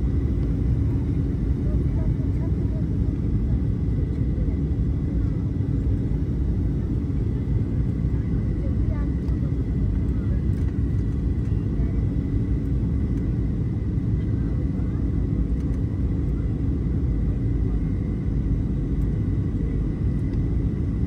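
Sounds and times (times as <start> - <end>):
airliner cabin rumble: 0.0 - 21.0.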